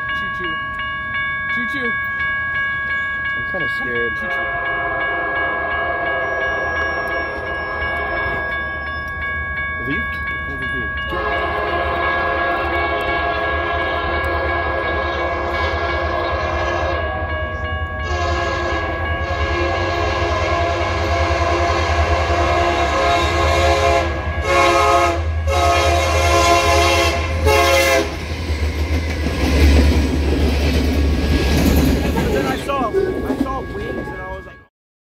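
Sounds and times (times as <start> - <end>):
locomotive engine and wheels rumbling: 0.0 - 34.7
train air horn blasts: 4.4 - 7.4, 11.1 - 17.4, 18.0 - 28.2.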